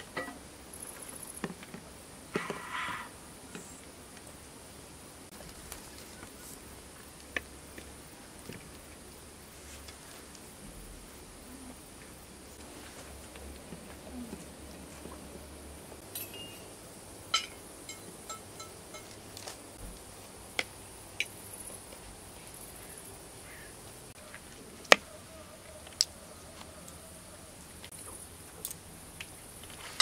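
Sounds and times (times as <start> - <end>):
faint high hiss: 0.0 - 24.2
cutlery clinking on plates: 17.3 - 19.2.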